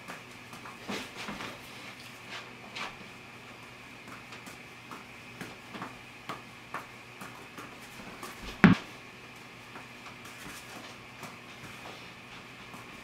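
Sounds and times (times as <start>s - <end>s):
balls slapping into hands: 8.4s - 8.8s
loud thump: 8.6s - 8.8s.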